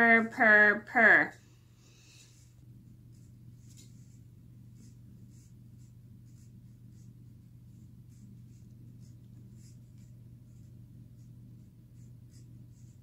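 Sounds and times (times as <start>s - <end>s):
steady low hum: 0.0s - 13.0s
hands rustling a picture book: 2.2s - 11.3s.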